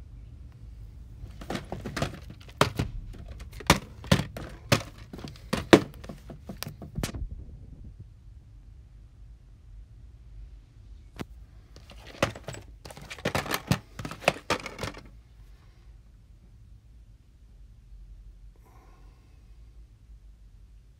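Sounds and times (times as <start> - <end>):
plastic cases clacking: 1.2 - 7.1, 11.8 - 15.2.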